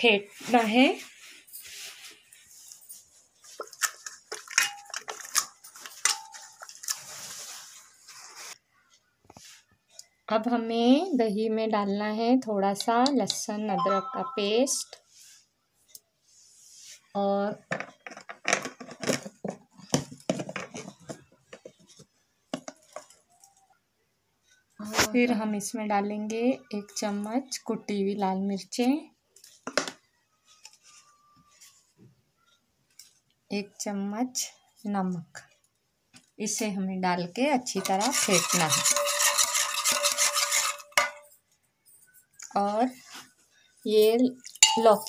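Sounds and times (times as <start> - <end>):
masher squelching food: 37.8 - 41.0
whisk clinking against metal pot: 37.8 - 41.3, 44.6 - 45.0.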